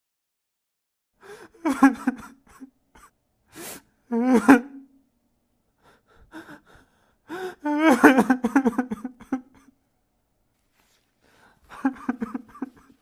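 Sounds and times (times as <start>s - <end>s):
sharp gasping breath: 1.2s - 1.6s, 3.5s - 3.9s, 5.8s - 7.7s, 11.2s - 11.8s
person sobbing: 1.2s - 4.9s, 5.8s - 9.8s, 11.6s - 13.0s.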